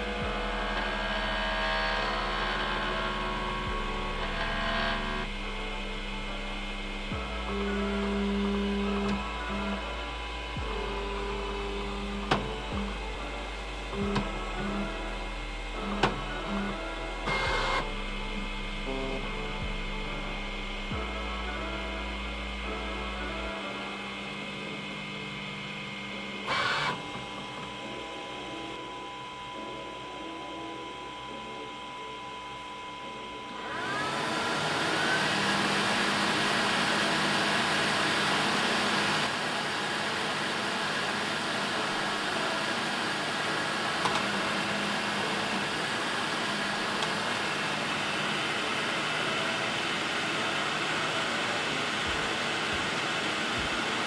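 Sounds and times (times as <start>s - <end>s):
fan rushing: 0.0s - 30.9s
printer hum: 0.0s - 54.0s.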